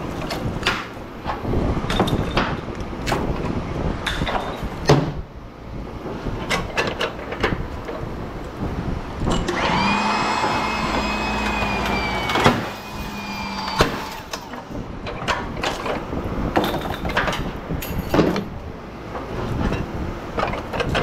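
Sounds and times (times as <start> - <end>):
steady mechanical whine: 0.0 - 16.6.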